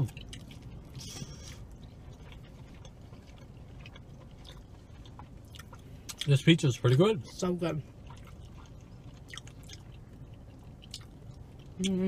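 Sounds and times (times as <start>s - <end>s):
chewing pizza crust: 0.0s - 12.0s.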